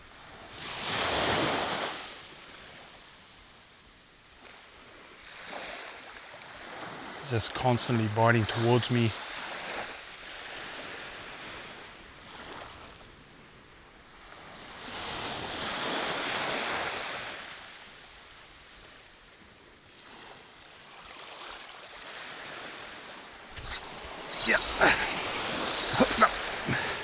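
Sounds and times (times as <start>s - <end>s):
small waves washing on sand: 0.0s - 3.6s, 4.3s - 27.0s
wave breaking on sand: 23.5s - 27.0s.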